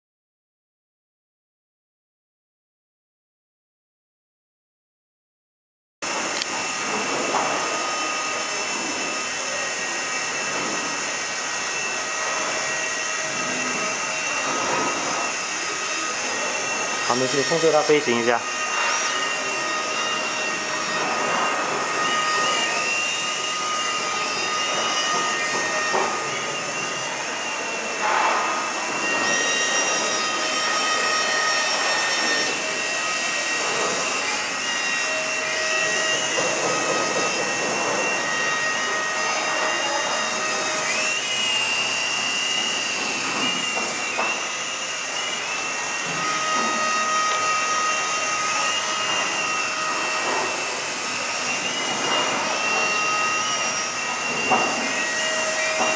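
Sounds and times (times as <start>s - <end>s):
toy helicopter motor whining: 6.1s - 55.9s.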